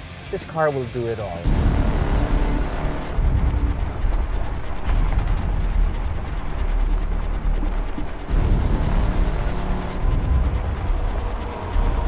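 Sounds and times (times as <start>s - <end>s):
diesel engine rumbling under load: 1.5s - 12.0s
gravel sprayed by tyres: 1.5s - 12.0s.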